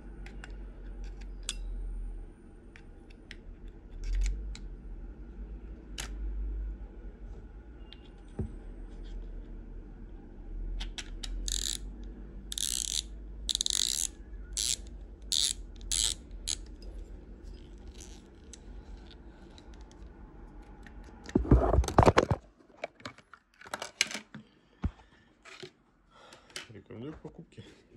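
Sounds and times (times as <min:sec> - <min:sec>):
reel drag clicker ratcheting: 0:11.4 - 0:11.8, 0:12.5 - 0:16.7.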